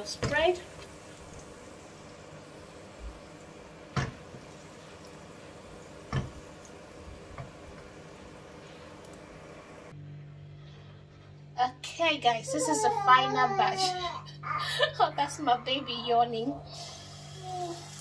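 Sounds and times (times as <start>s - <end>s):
batter sizzling in frying pan: 0.0s - 9.9s, 16.8s - 18.0s
steady hum: 0.0s - 17.3s
pan knocking on burner grate: 3.9s - 4.5s, 6.0s - 6.5s.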